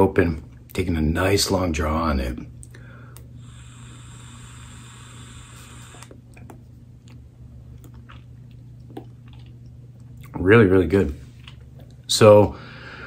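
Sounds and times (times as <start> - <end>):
airy hiss of vape draw: 3.4 - 6.1.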